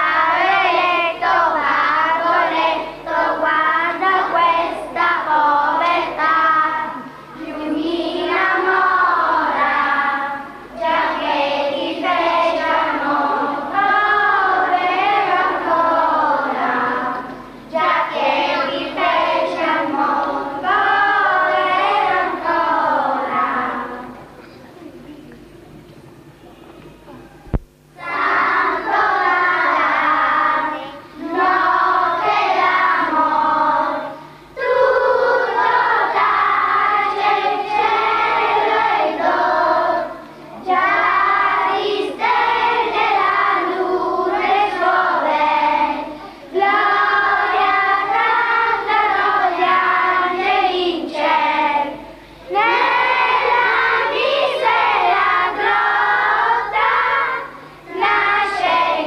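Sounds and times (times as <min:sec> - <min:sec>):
children's choir singing: 0:00.0 - 0:24.4, 0:27.8 - 0:59.0.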